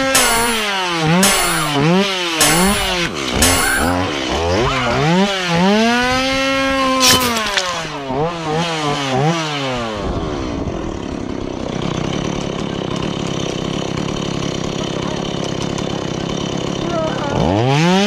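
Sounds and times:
sharp snap: 0:00.0 - 0:01.8, 0:02.4 - 0:04.0, 0:07.0 - 0:08.0
chainsaw engine revving and idling: 0:00.0 - 0:18.0.

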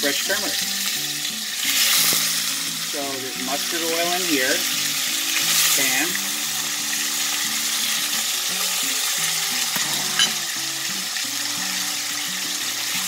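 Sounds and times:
fish sizzling in a pan: 0:00.0 - 0:13.0.

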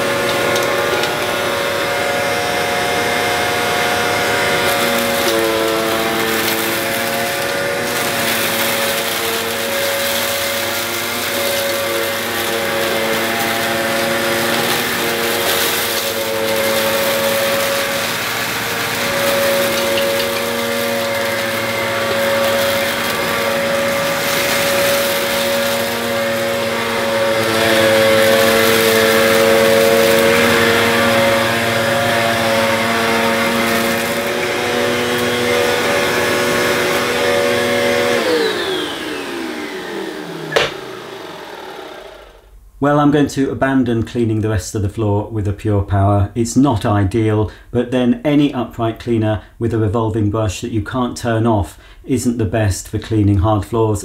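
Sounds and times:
brush roll scraping tiles: 0:00.0 - 0:38.7
vacuum cleaner motor whine: 0:00.0 - 0:42.5
grit rattling up nozzle: 0:04.4 - 0:37.0.

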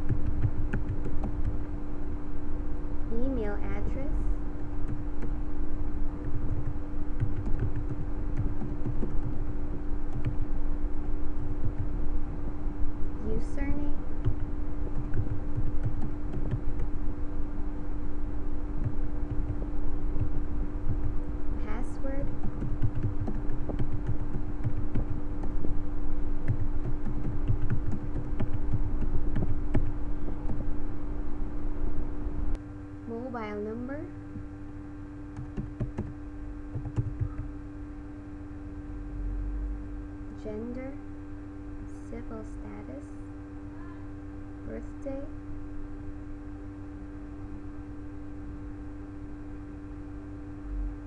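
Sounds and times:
keyboard typing: 0:00.0 - 0:01.6, 0:06.2 - 0:09.4, 0:10.1 - 0:10.4, 0:14.2 - 0:17.0, 0:18.8 - 0:25.8, 0:26.4 - 0:30.7, 0:35.4 - 0:37.5
steady low hum: 0:00.0 - 0:51.0.

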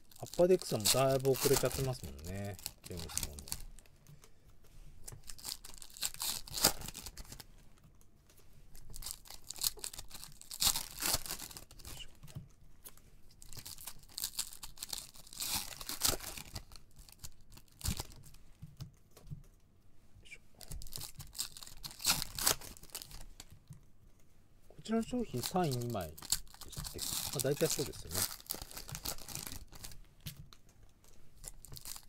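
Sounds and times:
foil wrappers tearing and crinkling: 0:00.0 - 0:03.8, 0:05.1 - 0:07.4, 0:08.8 - 0:12.1, 0:13.4 - 0:18.3, 0:20.7 - 0:23.5, 0:24.9 - 0:30.0, 0:31.4 - 0:32.0.

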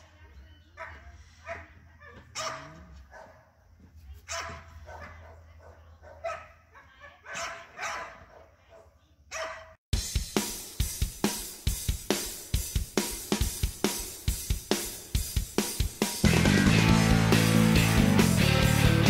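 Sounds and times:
dog barking: 0:00.8 - 0:03.5, 0:04.2 - 0:09.8
loud music with drum kit: 0:09.9 - 0:19.0.

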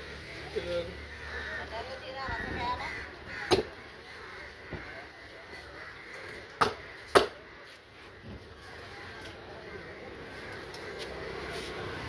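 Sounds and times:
cleaver chopping fish on wood: 0:03.5 - 0:03.7, 0:06.6 - 0:07.4.

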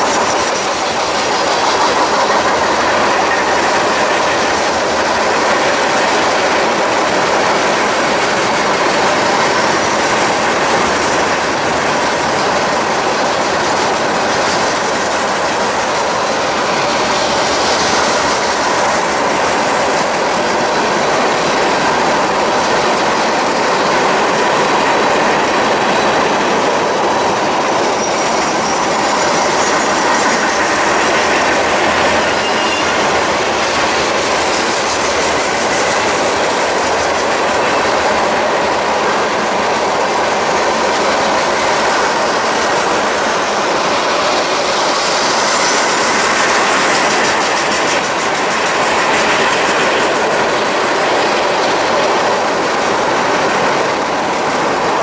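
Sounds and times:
train cars rumbling and clattering: 0:00.0 - 0:55.0
faint wheel squeal: 0:32.2 - 0:33.2.

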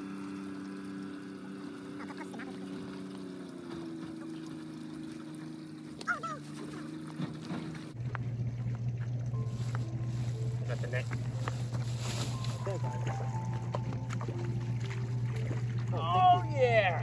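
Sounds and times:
motorboat engine drone: 0:00.0 - 0:17.0
waterfowl calls: 0:01.9 - 0:02.8, 0:06.0 - 0:06.9.

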